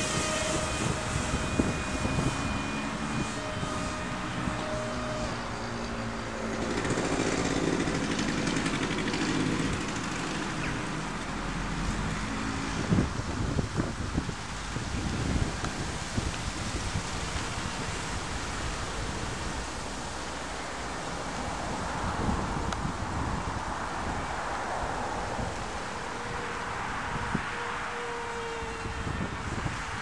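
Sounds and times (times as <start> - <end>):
motor droning: 0.0 - 11.6
wind on microphone: 0.0 - 30.0.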